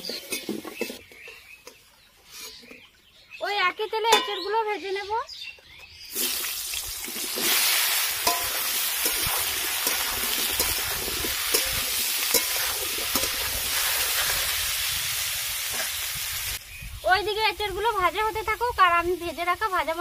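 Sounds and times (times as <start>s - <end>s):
jackfruit sizzling in hot oil: 6.1s - 20.0s
spatula scraping a pan: 7.3s - 14.6s.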